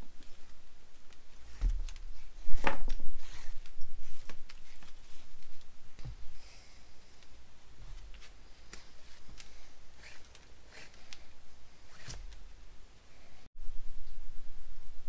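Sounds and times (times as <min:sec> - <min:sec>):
thread rasping through leather: 0:08.2 - 0:12.4.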